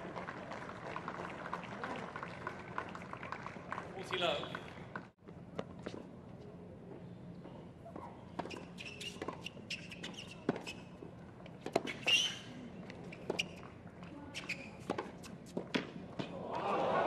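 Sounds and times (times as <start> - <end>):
tennis ball bouncing: 8.4 - 10.8, 11.6 - 12.1, 14.4 - 16.3.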